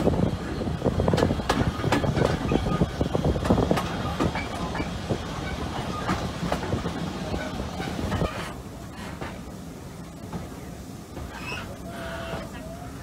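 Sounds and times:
train wheels rumbling on rails: 0.0 - 13.0
wheels clicking over track: 1.0 - 9.4.

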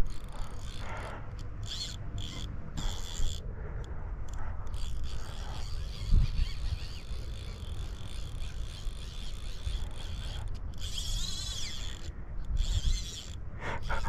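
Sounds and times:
fishing reel drag clicking: 0.0 - 14.0.

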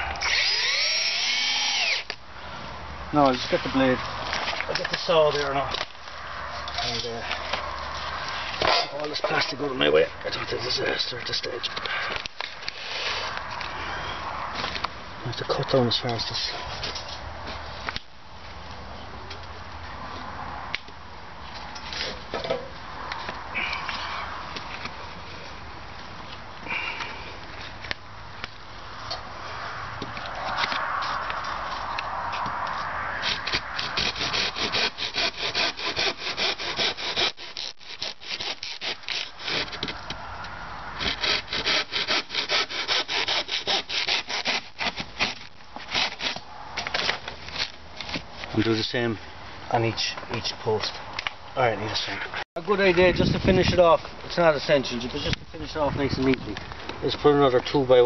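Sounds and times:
hand saw rasping through wood: 33.2 - 40.0, 41.0 - 46.4.

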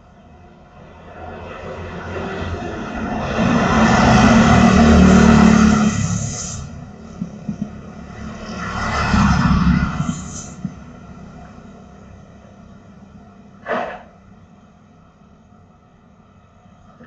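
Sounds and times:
vehicle passing by: 0.9 - 12.0.

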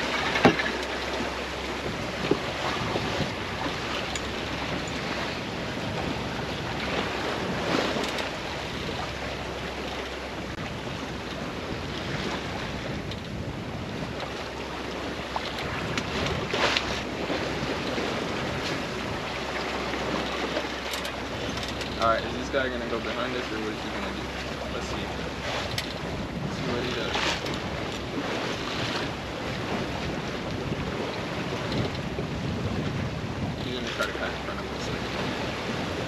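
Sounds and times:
water rushing along hull: 0.0 - 36.0
wind buffeting microphone: 0.0 - 36.0.

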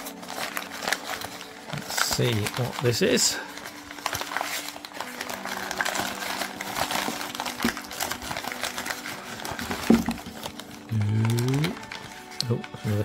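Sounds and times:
newspaper crinkling and rustling: 0.0 - 13.0.

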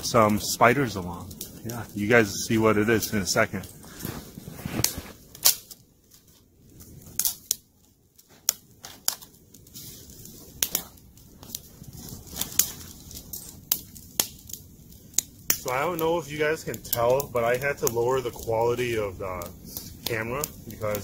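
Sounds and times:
twigs snapping: 4.0 - 6.3, 7.0 - 7.6, 10.6 - 16.1.

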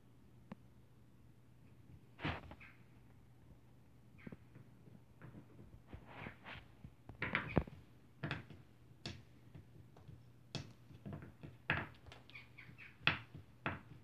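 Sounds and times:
crow pecking wooden puzzle: 7.1 - 14.0
wood knocking and rattling: 10.6 - 14.0.

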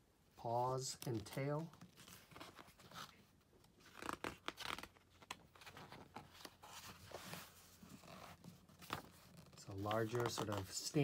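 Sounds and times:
paper rustling: 1.0 - 11.0.

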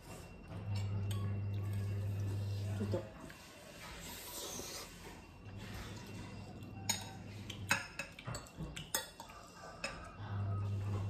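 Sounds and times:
low steady hum: 0.0 - 11.0
cutlery clinking on glass plates: 6.1 - 10.2.

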